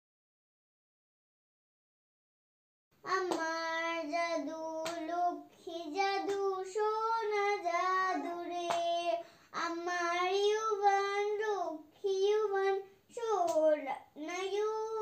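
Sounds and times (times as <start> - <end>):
child singing: 3.0 - 15.0.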